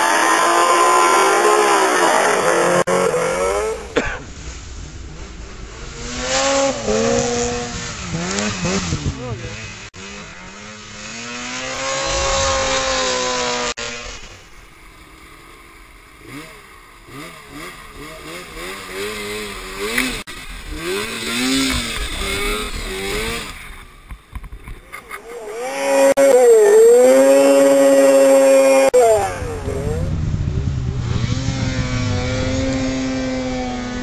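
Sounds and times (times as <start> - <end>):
snowmobile engine at high revs: 0.0 - 34.0
snowmobile engine revving: 0.0 - 34.0.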